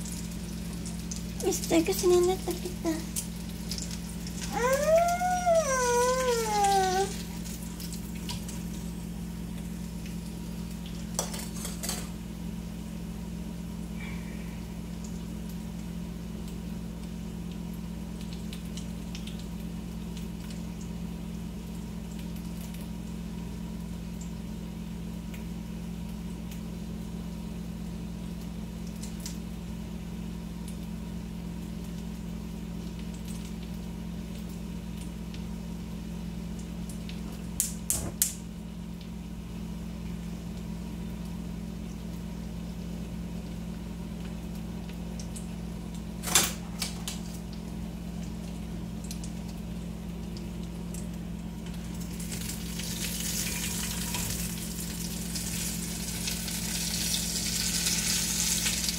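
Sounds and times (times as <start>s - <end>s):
food frying in a skillet: 0.0s - 13.8s, 47.0s - 58.9s
steady low hum: 0.0s - 56.5s
wavering voice-like call: 4.5s - 7.2s.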